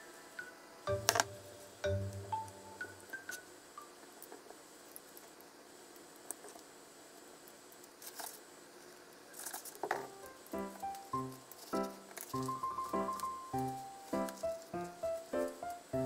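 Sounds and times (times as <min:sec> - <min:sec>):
rustling: 0:07.8 - 0:16.0.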